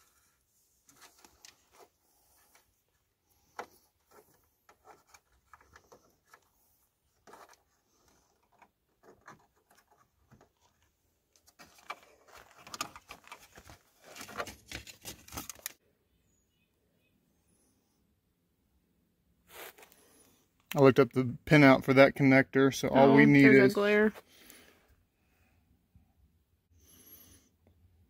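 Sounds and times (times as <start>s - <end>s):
hands handling plastic parts: 0.0s - 15.8s.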